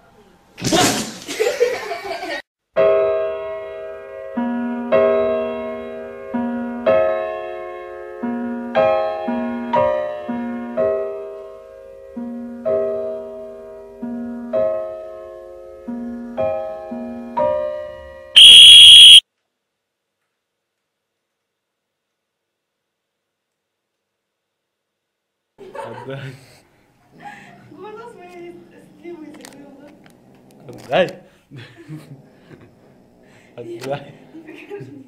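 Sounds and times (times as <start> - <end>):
slow piano music: 2.8 - 18.3
loud harsh buzz: 18.4 - 19.2.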